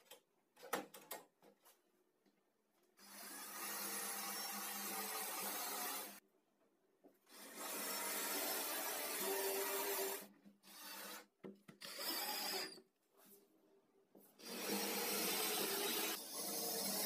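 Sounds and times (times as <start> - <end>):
drill driving screws into wood: 3.0 - 6.2, 7.3 - 11.2, 11.8 - 12.8, 14.4 - 17.0.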